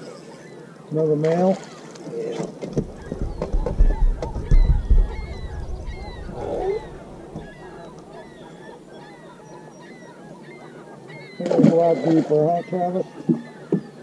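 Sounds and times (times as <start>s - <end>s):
birds honking: 0.0s - 14.0s
dull thumps on boat deck: 2.7s - 7.9s.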